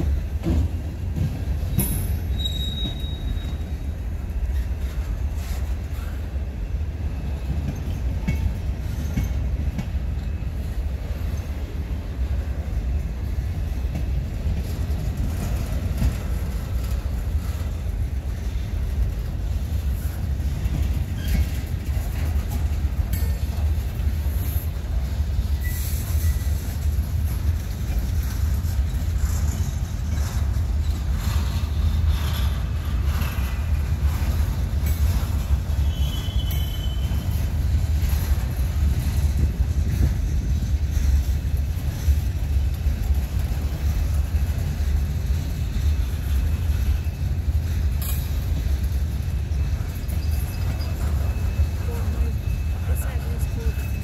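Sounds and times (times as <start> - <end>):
freight train rumbling: 0.0 - 54.0
wheel squeal: 1.7 - 3.7, 21.1 - 21.7, 25.6 - 26.5, 35.1 - 37.5, 49.5 - 52.9.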